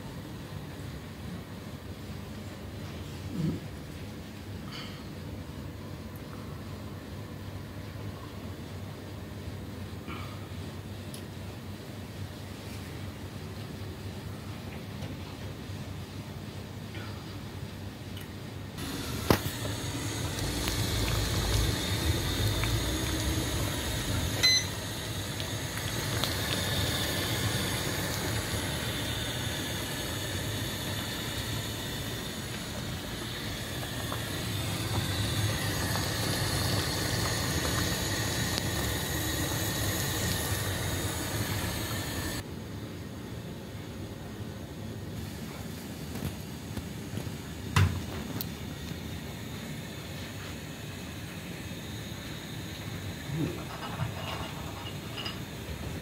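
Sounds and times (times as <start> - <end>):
water boiling in a pot: 18.8 - 42.4, 45.2 - 56.0
short beep: 24.4 - 24.8.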